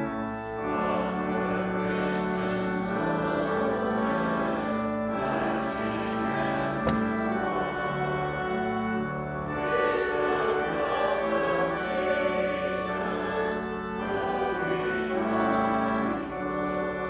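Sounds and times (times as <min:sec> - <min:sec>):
church organ playing hymn: 0:00.0 - 0:17.0
sharp knock: 0:06.8 - 0:07.1.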